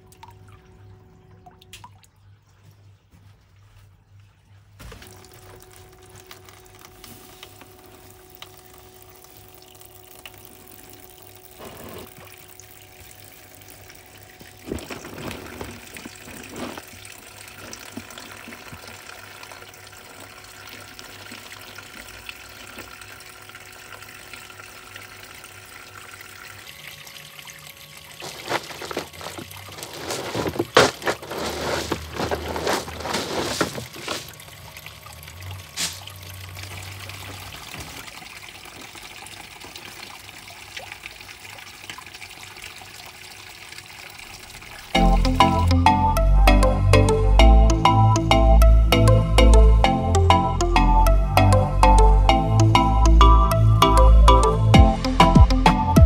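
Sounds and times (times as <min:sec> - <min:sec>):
faint steady hum: 0:00.0 - 0:56.0
water splashing: 0:04.8 - 0:19.1, 0:27.9 - 0:41.1
water pouring into plastic tub: 0:04.8 - 0:24.1, 0:25.7 - 0:45.0.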